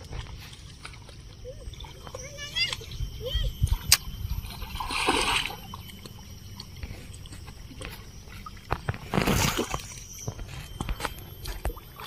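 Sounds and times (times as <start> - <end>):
person wading in water: 0.0 - 12.0
fish thrashing in water: 4.3 - 12.0.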